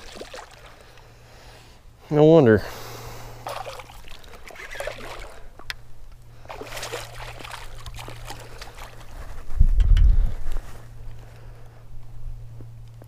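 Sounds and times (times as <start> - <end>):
fish splashing at the surface: 0.0 - 1.0, 3.4 - 5.6, 6.4 - 9.2
steady low hum: 0.0 - 13.0.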